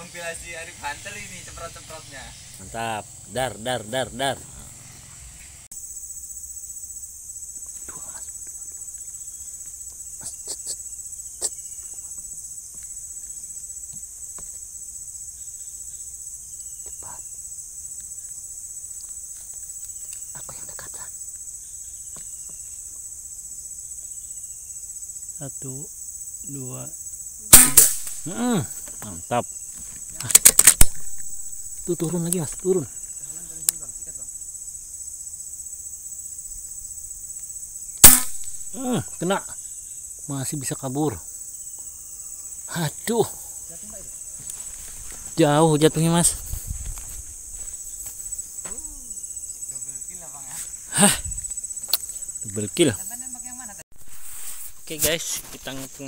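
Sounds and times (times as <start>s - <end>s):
insect chorus trilling: 0.0s - 56.0s
air rifle shot: 27.5s - 28.4s, 30.4s - 31.4s, 38.0s - 38.8s
sharp snap: 27.5s - 28.4s, 30.2s - 31.5s, 38.0s - 38.8s.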